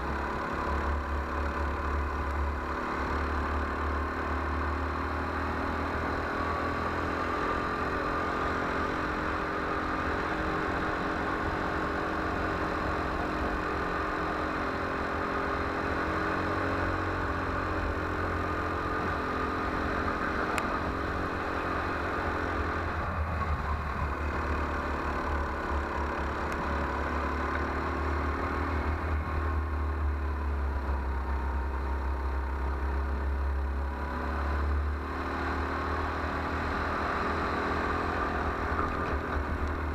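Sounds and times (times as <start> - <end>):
go-kart engine running: 0.0 - 39.9.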